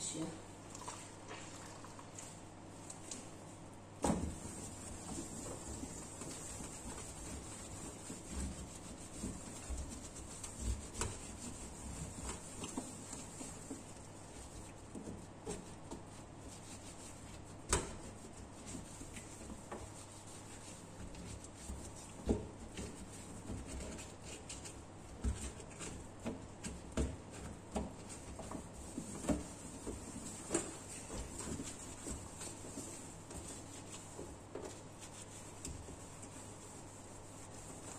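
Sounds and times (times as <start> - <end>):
towel rubbing on metal stove top: 4.3 - 37.9.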